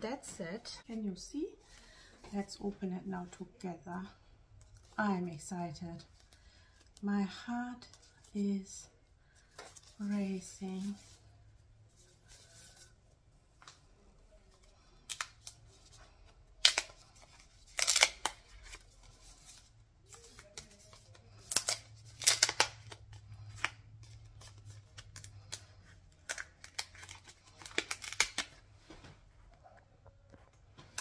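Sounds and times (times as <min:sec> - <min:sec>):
wrapping paper tearing: 0:16.6 - 0:28.6.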